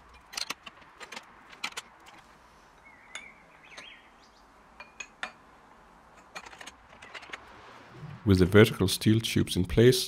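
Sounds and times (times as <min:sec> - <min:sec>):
metal parts clinking: 0:00.0 - 0:02.3, 0:06.1 - 0:07.5
bird chirping: 0:02.8 - 0:04.6.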